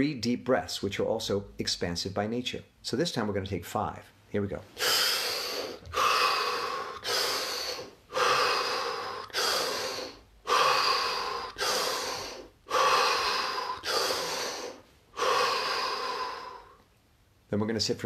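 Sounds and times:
man breathing deeply: 0:04.8 - 0:16.9.

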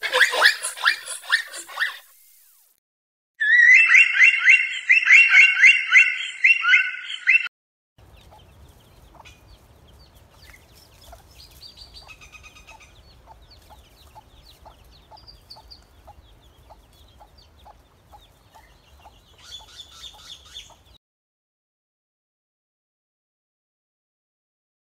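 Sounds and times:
chicks peeping: 0:08.0 - 0:21.0
hen clucking: 0:08.1 - 0:21.0.

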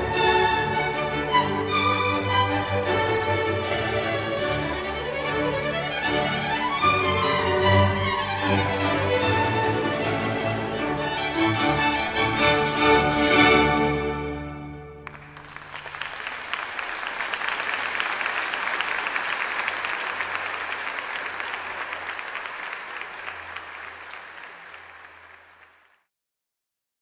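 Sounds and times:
audience applause: 0:15.0 - 0:26.1.

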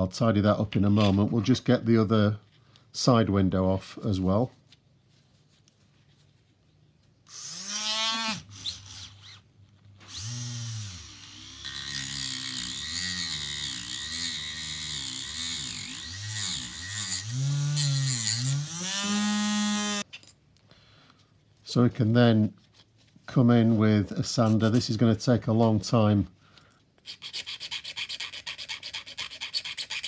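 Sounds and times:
rotary tool cutting plastic: 0:07.3 - 0:09.4, 0:10.0 - 0:20.1.

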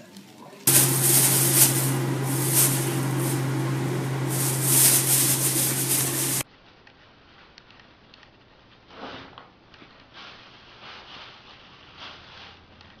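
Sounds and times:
low hum and hiss: 0:00.7 - 0:06.4
plastic bag rustling: 0:00.7 - 0:06.4.

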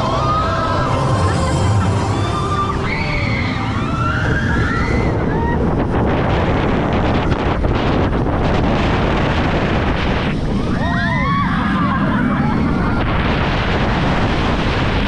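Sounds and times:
high wavering glides: 0:00.0 - 0:08.4
roller coaster rumbling on track: 0:00.0 - 0:15.0
wind rushing over microphone: 0:00.0 - 0:15.0.

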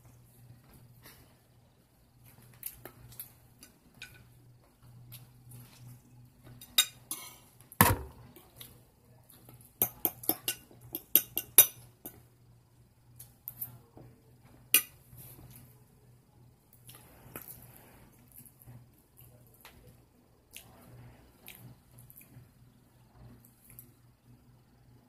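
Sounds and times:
fork clinking on a plate: 0:09.8 - 0:12.2.

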